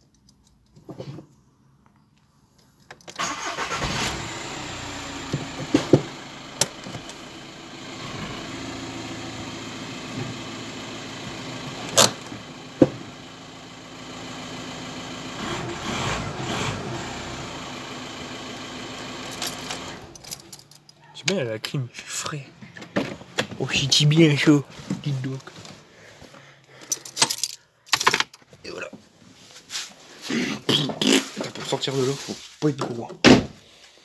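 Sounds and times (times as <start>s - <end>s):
car engine starting and idling: 3.1s - 20.9s.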